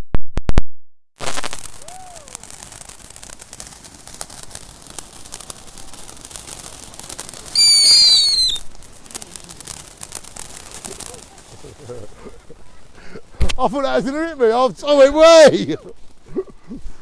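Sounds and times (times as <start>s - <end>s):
whistling firework shriek: 1.2s - 2.7s, 6.5s - 9.7s
fireworks crackling hiss: 1.2s - 17.0s.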